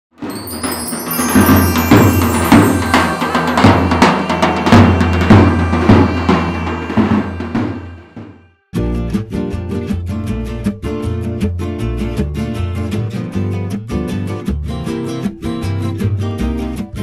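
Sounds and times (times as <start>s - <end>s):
music: 0.1s - 17.0s
music with steady drum beat: 0.2s - 11.8s.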